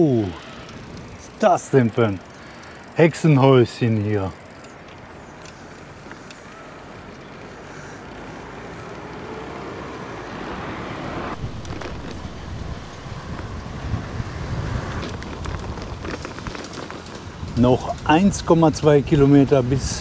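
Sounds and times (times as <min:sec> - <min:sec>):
motor vehicle passing: 0:00.0 - 0:18.0
wind rumbling on microphone: 0:10.4 - 0:20.0.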